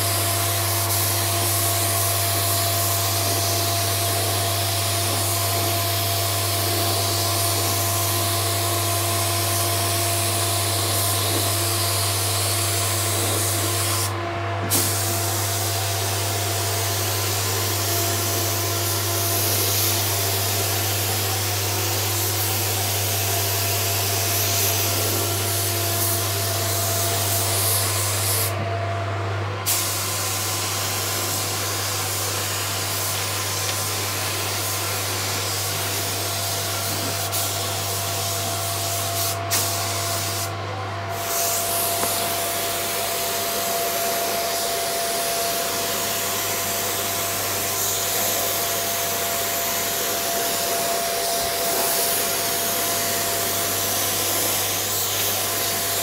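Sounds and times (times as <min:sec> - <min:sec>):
spray gun hissing: 0:14.7 - 0:28.6, 0:29.7 - 0:40.5, 0:41.1 - 0:56.0.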